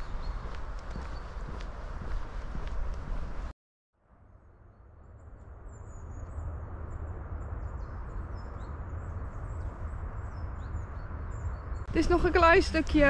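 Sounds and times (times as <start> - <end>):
small birds chirping: 0.0 - 2.6, 7.4 - 13.0.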